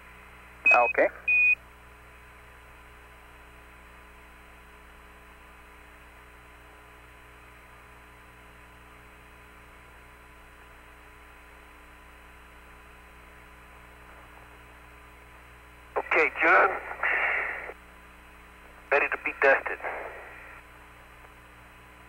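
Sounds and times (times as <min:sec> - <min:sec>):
radio channel hum and hiss: 0:00.4 - 0:02.5, 0:05.3 - 0:22.0
constant radio tones: 0:00.7 - 0:01.6, 0:15.9 - 0:17.8, 0:18.6 - 0:20.6.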